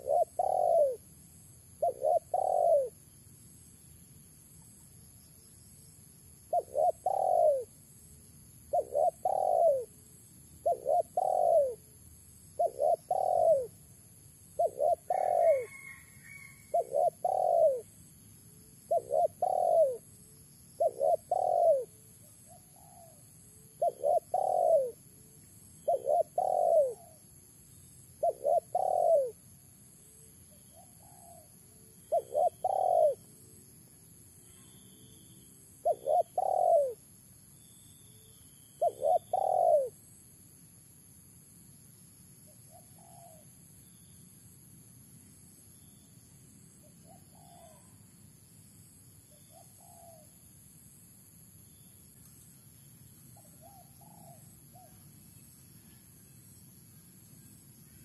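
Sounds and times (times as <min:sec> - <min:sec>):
dove cooing: 0:00.0 - 0:01.1, 0:01.8 - 0:03.0, 0:06.5 - 0:07.8, 0:08.7 - 0:10.0, 0:10.6 - 0:11.9, 0:12.6 - 0:13.8, 0:14.6 - 0:18.0, 0:18.9 - 0:20.1, 0:20.8 - 0:25.2, 0:25.8 - 0:27.2, 0:28.2 - 0:29.4, 0:30.7 - 0:33.4, 0:35.7 - 0:37.0, 0:38.8 - 0:40.0, 0:42.7 - 0:43.5, 0:47.0 - 0:48.0, 0:49.4 - 0:50.4, 0:53.4 - 0:55.1.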